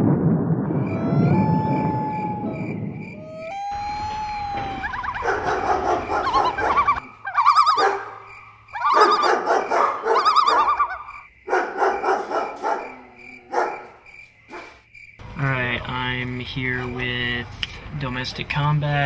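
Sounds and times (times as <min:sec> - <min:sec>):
animal high wavering cries: 0:00.7 - 0:11.2.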